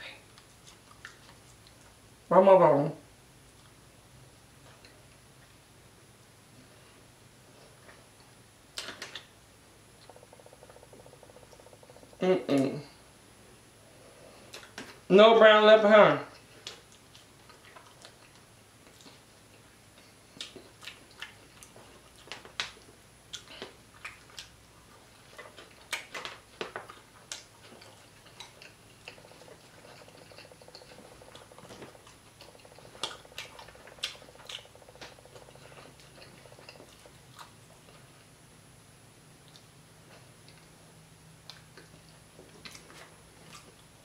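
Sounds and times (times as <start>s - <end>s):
quiet chewing: 0.1s - 2.0s, 3.4s - 3.8s, 4.6s - 5.6s, 10.0s - 12.2s, 13.9s - 15.1s, 16.3s - 38.4s, 39.4s - 44.0s.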